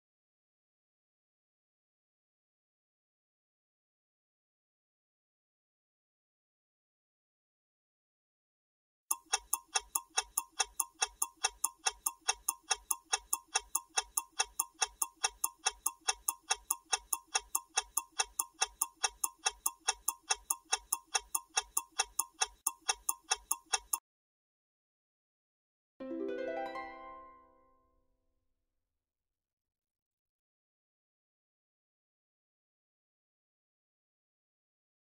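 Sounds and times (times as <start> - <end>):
fast clock ticking: 9.1 - 24.0.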